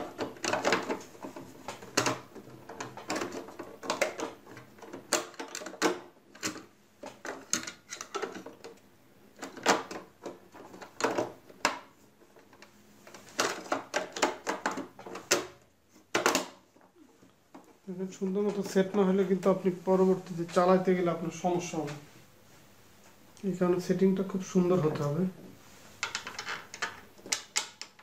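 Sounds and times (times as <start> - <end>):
plastic clicks and rattles: 0.0 - 8.8, 9.4 - 16.9, 26.0 - 28.0.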